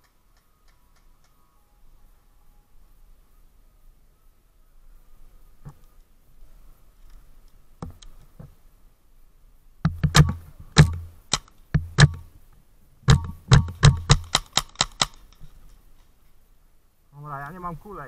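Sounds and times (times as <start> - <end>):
paintball marker shots: 9.9 - 12.2, 13.1 - 15.2.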